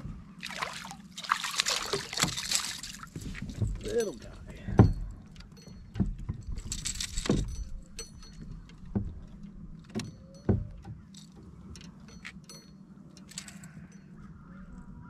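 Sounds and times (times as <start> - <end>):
fishing lure and hooks clinking: 1.4 - 14.3
knocks on a kayak: 4.7 - 5.1.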